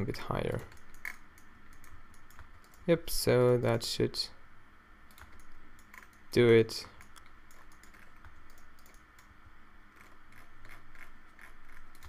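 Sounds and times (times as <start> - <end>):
faint low hum: 0.0 - 12.0
keyboard keys clicking: 7.0 - 9.3.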